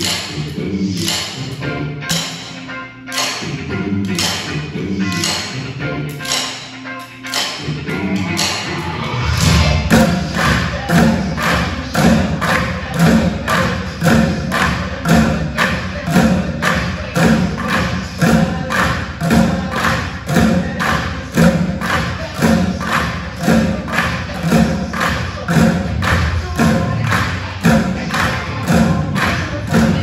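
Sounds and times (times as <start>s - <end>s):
drumsticks on plastic buckets: 9.9s - 30.0s.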